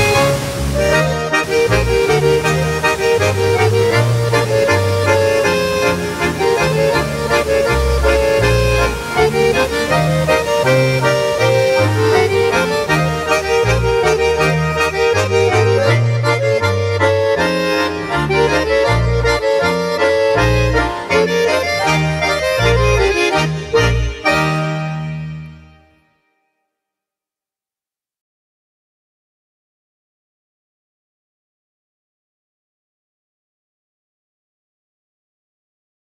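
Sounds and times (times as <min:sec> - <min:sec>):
accordion folk music: 0:00.0 - 0:26.2.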